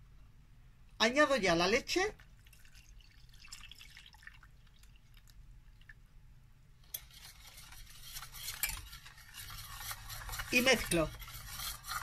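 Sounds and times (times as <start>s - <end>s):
drips: 2.2s - 6.0s
milk trickling into a saucepan: 2.2s - 6.1s, 6.9s - 12.0s
whisk stirring and scraping pan: 6.9s - 12.0s.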